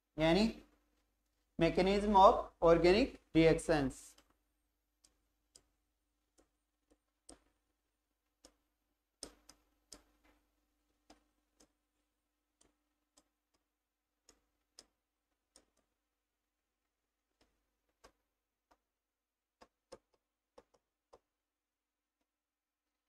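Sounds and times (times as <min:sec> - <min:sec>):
marker tapping on whiteboard: 0:08.4 - 0:11.8, 0:19.6 - 0:21.4.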